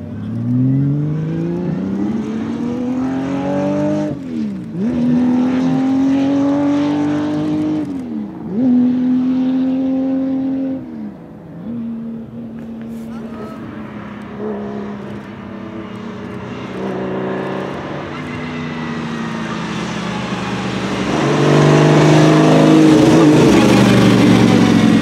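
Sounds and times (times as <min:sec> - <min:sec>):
car engine accelerating hard: 0:00.0 - 0:25.0.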